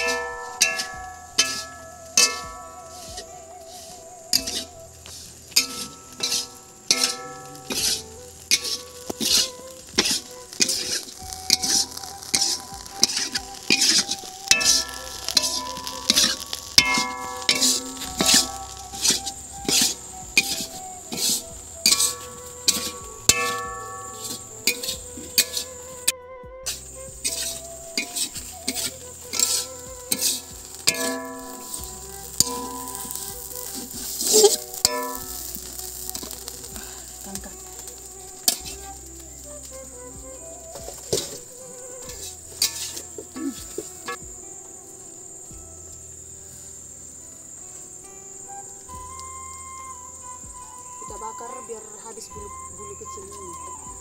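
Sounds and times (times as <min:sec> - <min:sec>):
metal spatula scraping wok: 0:00.0 - 0:25.7, 0:26.7 - 0:38.9, 0:42.0 - 0:44.2
soft background music: 0:00.0 - 0:54.0.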